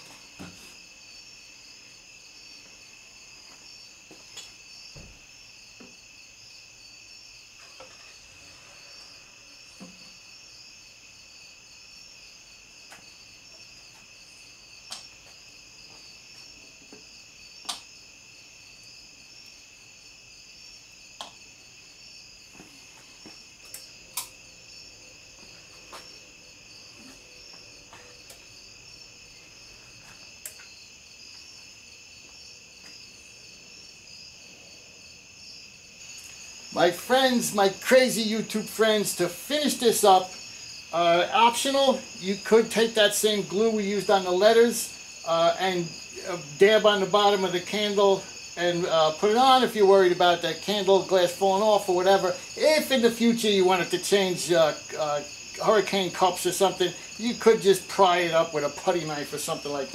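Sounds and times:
insects chirring: 0.0s - 59.9s.

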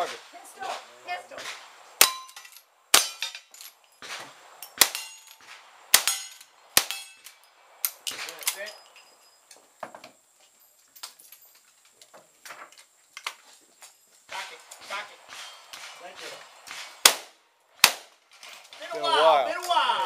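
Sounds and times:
steel targets ringing: 2.0s - 3.7s, 4.8s - 5.4s, 6.0s - 7.4s
rifle shots: 4.0s - 7.2s, 14.4s - 18.2s
faint knocks and clatter: 9.5s - 13.9s.

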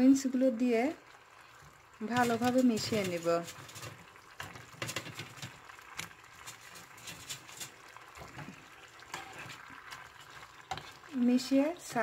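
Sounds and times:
thick sauce bubbling in pan: 0.0s - 12.0s
spatula clicks and scrapes: 2.1s - 11.1s.

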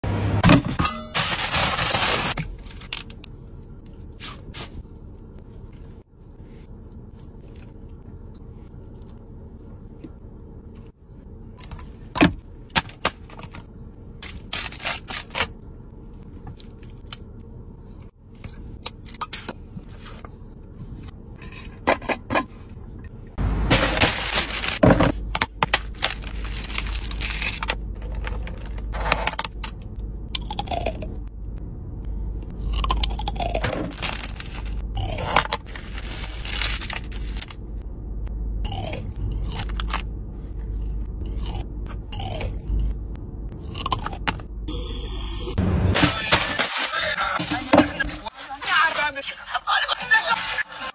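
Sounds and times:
plastic bag rustling: 23.7s - 29.0s, 35.6s - 37.4s.

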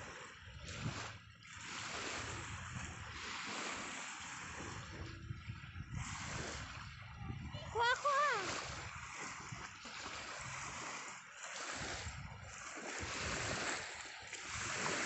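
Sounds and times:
small waves breaking: 0.0s - 15.0s
wind rumbling on microphone: 0.0s - 15.0s.

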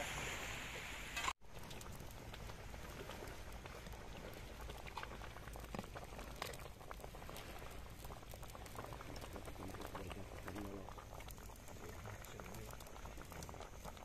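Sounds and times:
soup boiling and bubbling: 0.0s - 14.0s.

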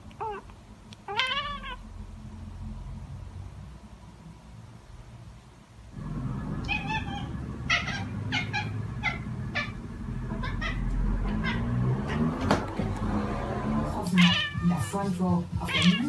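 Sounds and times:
cat meowing high: 1.1s - 1.8s, 6.7s - 9.8s, 14.2s - 14.8s, 15.7s - 16.0s.

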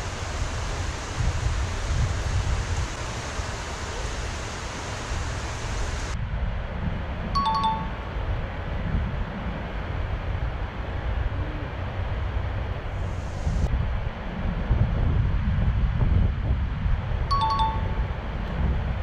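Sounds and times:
river water rushing: 0.0s - 6.2s
wind buffeting microphone: 0.0s - 19.0s
two-tone chime: 7.4s - 8.0s, 17.3s - 18.2s.

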